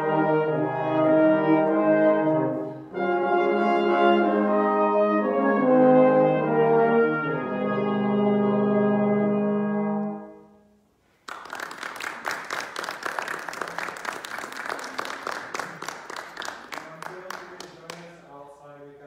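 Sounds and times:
brass quartet chord: 0.0 - 10.8
applause: 11.1 - 18.2.

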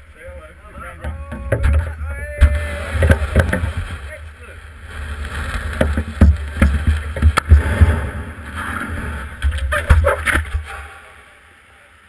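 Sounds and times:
wind rumble: 0.0 - 10.7
surfboard knocks and clunks: 0.8 - 4.1, 5.5 - 8.3, 9.4 - 10.7.

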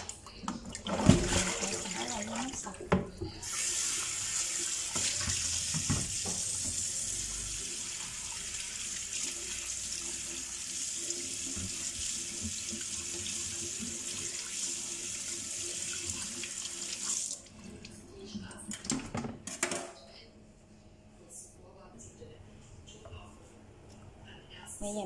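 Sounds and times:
tap water running into steel sink: 0.4 - 17.5.

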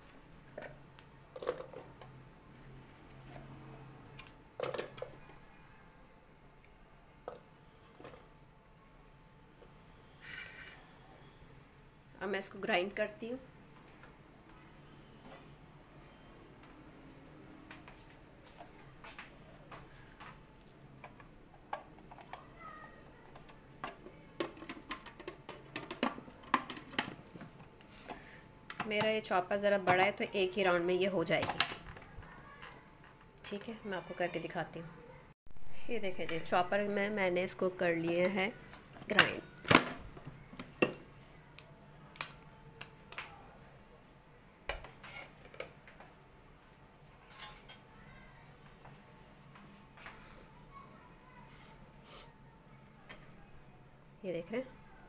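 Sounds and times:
kitchenware clicks and knocks: 23.3 - 27.6.

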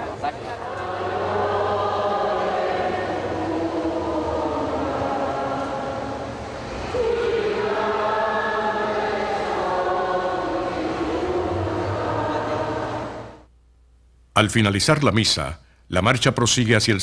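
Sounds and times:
group singing a slow hymn: 0.0 - 13.5.

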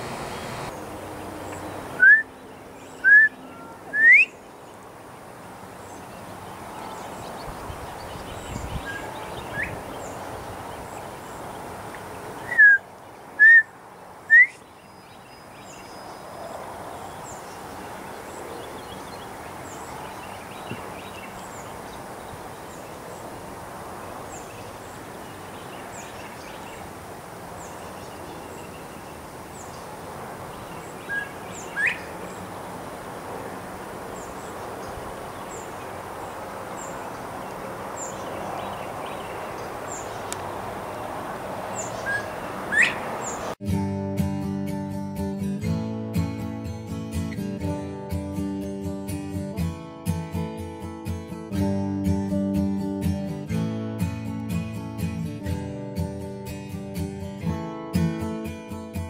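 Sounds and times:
bobwhite whistled call: 2.0 - 2.3, 3.0 - 4.4, 8.8 - 9.8, 12.4 - 13.7, 14.3 - 14.6, 31.1 - 32.1, 41.9 - 43.0.

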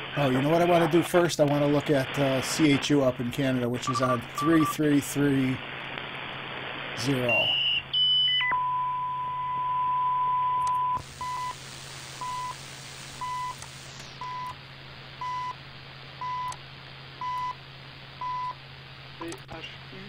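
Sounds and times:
radio static: 0.0 - 8.3, 10.7 - 15.4
steady radio whistle: 3.8 - 5.0, 7.2 - 14.6
short time signal beeps: 3.9 - 4.8.

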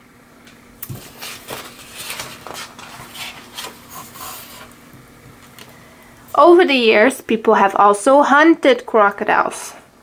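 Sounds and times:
paper page turning: 0.8 - 4.8.

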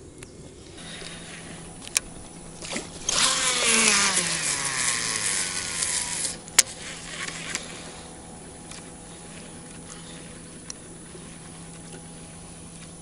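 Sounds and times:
fishing reel spool whirring: 0.0 - 13.0
reel sharp click: 0.2 - 10.0.

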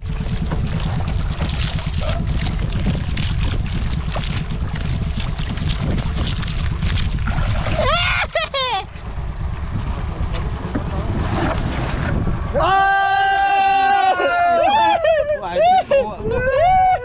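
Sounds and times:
water lapping against boat hull: 0.0 - 12.6
wind rumbling on microphone: 0.0 - 17.0.

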